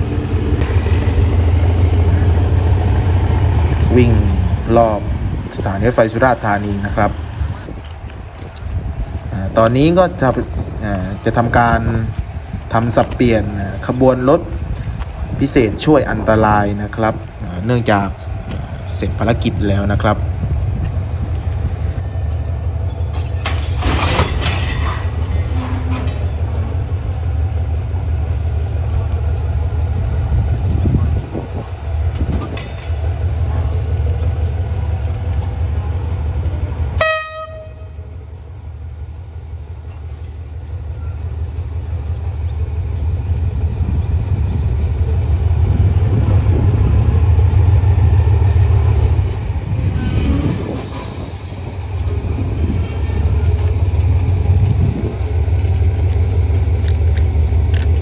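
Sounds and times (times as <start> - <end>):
locomotive low rumble: 0.0 - 58.0
locomotive horn toot: 25.3 - 26.3, 36.9 - 38.1.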